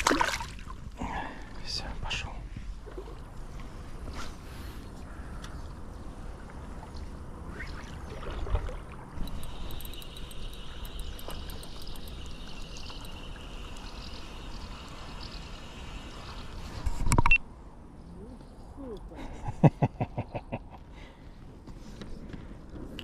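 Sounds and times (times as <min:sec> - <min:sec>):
water moving around kayak: 0:02.5 - 0:05.0, 0:05.6 - 0:17.1
insects chirping: 0:02.9 - 0:17.4.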